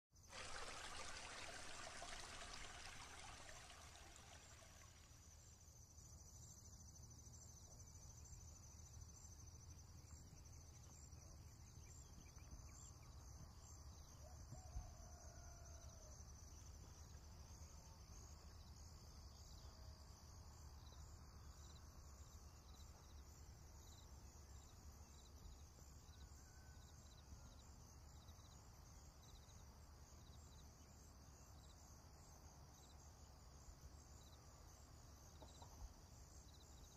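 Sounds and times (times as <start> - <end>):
water pouring and trickling: 0.1 - 5.4.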